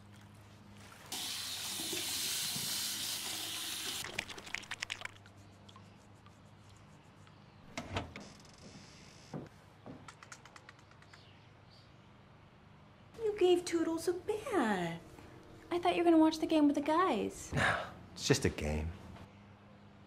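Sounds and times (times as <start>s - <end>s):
water running from a tap: 1.1s - 5.1s
drips and clicks: 4.0s - 6.3s.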